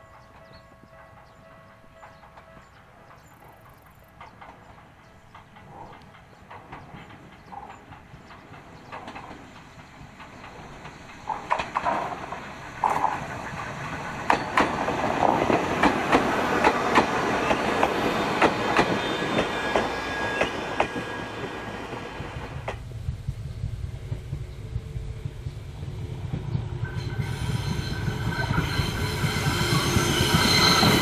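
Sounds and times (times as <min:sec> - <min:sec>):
train wheels clicking over rail joints: 0:00.1 - 0:31.0.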